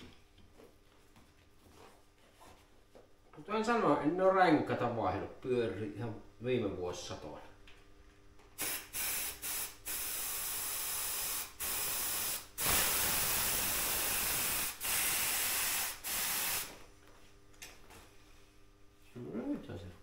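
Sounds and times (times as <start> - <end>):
compressed air hissing: 8.6 - 16.8.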